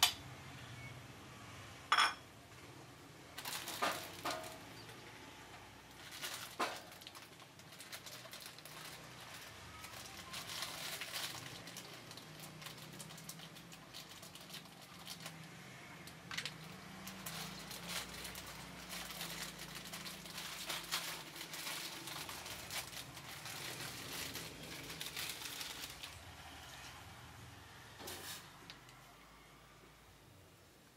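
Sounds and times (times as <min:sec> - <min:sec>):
crinkling: 0:03.4 - 0:05.0, 0:05.8 - 0:26.4.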